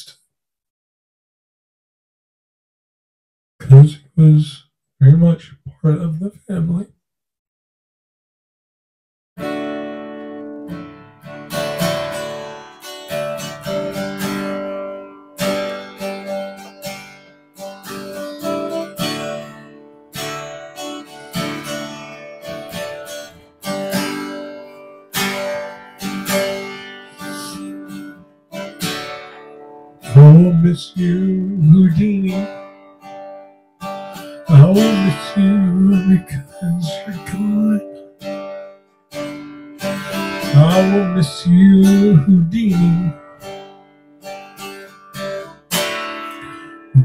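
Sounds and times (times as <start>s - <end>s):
acoustic guitar strumming chords: 9.4s - 47.0s.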